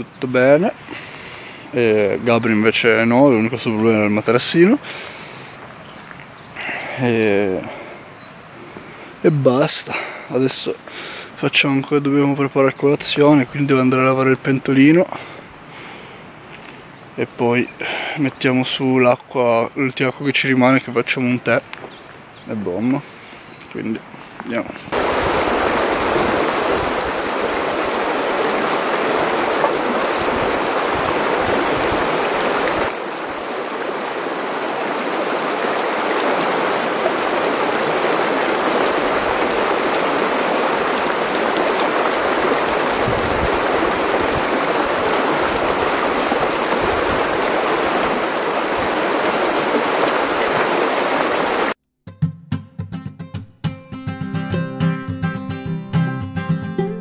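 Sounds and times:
stream running over stones: 0:24.5 - 0:51.8.

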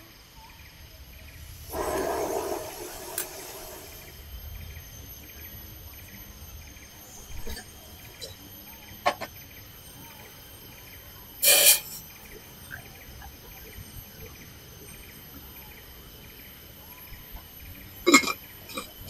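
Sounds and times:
faint chirp: 0:00.0 - 0:19.0
insect drone: 0:00.0 - 0:19.0
loud noisy burst: 0:01.6 - 0:04.2.

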